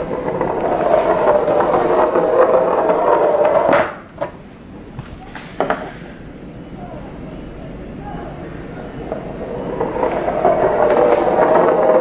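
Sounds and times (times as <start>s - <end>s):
metal cylinder rolling on tabletop: 0.0s - 4.4s, 8.5s - 12.0s.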